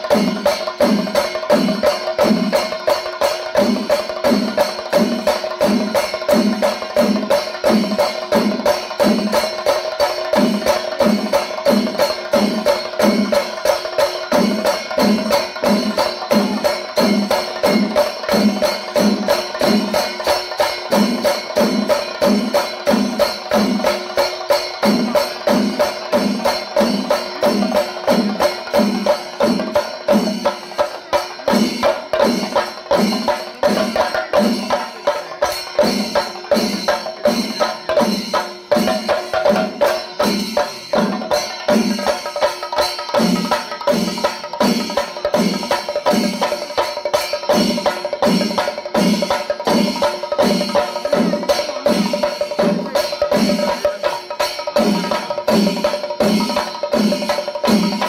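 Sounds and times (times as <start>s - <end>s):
drum ensemble playing fast rhythm: 0.0s - 58.0s
hand cymbals clashing: 0.0s - 58.0s.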